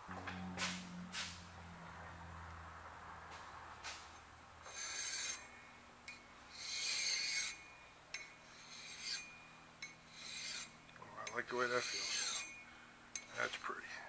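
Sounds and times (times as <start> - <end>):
file rasping on spinning metal: 4.6 - 5.5, 6.5 - 12.6.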